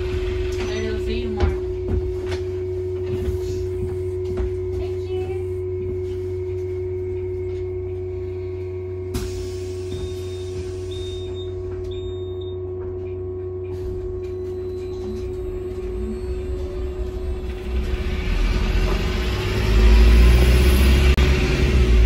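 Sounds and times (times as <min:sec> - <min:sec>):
steady hum: 0:00.0 - 0:22.0
bus drivetrain rumble: 0:13.8 - 0:22.0.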